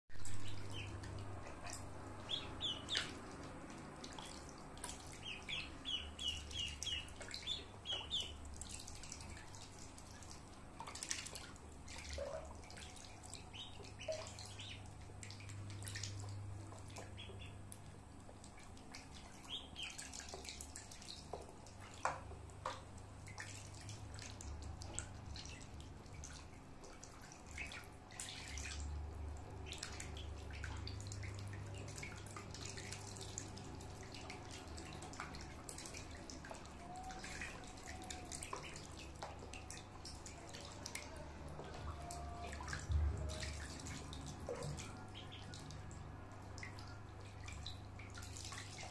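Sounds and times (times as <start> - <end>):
small water splashes: 0.1 - 48.9
ducklings peeping: 0.2 - 3.4, 4.2 - 9.8, 11.1 - 16.0, 16.7 - 17.6, 18.5 - 20.4, 27.0 - 28.8, 29.6 - 31.4, 36.6 - 39.0, 41.7 - 45.8.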